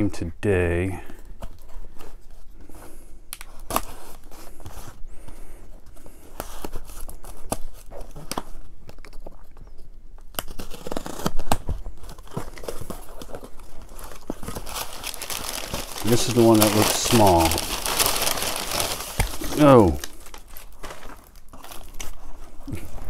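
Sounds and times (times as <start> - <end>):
tape tearing: 3.3 - 4.8, 10.2 - 22.2
knife slitting packing tape: 10.3 - 13.3.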